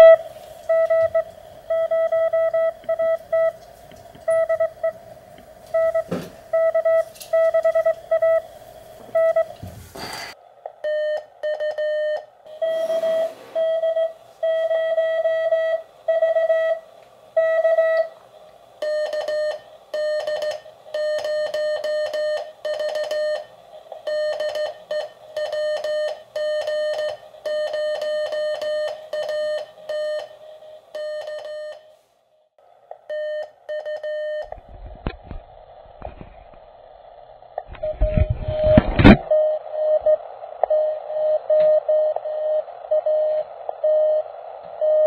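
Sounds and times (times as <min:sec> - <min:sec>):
morse code radio tone: 0:00.0 - 0:03.6.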